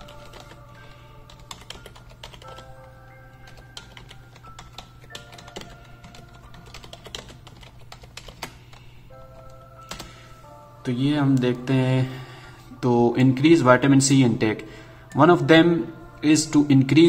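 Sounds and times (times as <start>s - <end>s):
background music: 0.0s - 17.0s
keyboard typing clicks: 1.3s - 10.2s.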